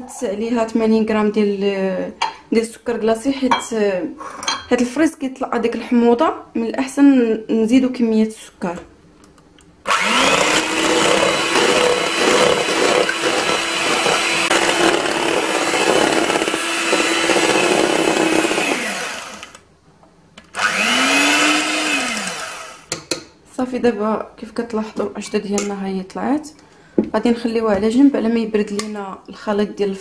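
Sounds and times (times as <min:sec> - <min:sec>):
electric hand mixer whining: 0:09.9 - 0:19.6, 0:20.5 - 0:22.9.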